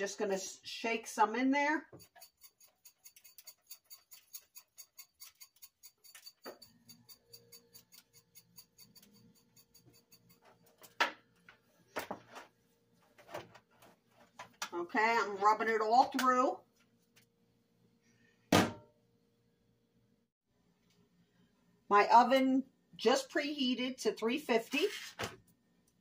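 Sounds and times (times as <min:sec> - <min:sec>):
pepper shaker rattling: 0:02.0 - 0:10.9.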